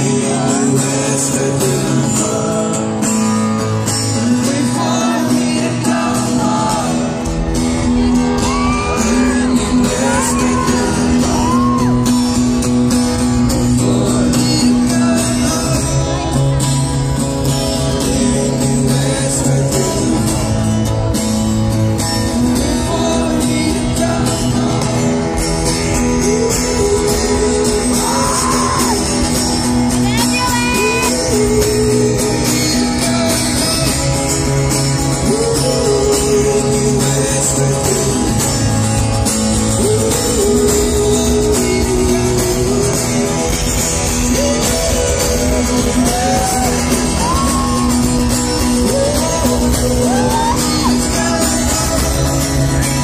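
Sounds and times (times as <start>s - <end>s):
person singing: 0.0s - 20.7s, 22.0s - 53.0s
acoustic guitar music: 0.0s - 53.0s
crowd shouting: 2.3s - 13.7s, 26.4s - 31.7s, 44.1s - 53.0s.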